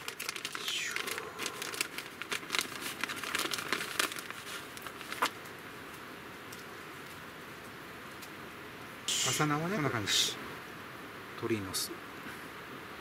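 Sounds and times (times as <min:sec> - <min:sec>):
plastic bag crinkling: 0:00.0 - 0:05.5.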